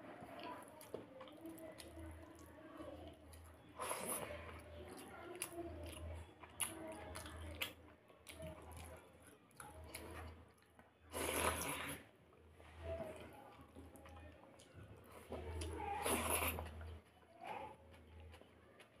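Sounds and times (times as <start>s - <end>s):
person chewing: 9.6s - 12.0s, 14.0s - 19.0s.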